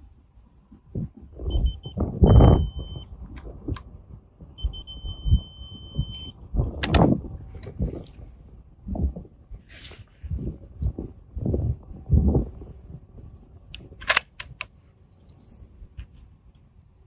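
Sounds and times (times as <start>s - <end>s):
high electronic beeps: 1.5s - 3.1s, 4.6s - 6.4s.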